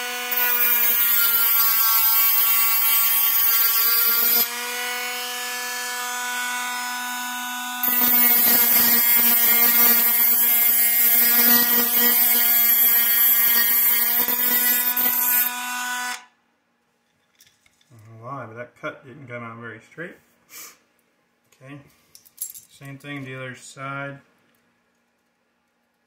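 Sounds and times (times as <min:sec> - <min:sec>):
cutoff wheel grinding metal: 0:00.0 - 0:04.6, 0:07.8 - 0:15.6
rotary tool high whine: 0:00.0 - 0:16.3.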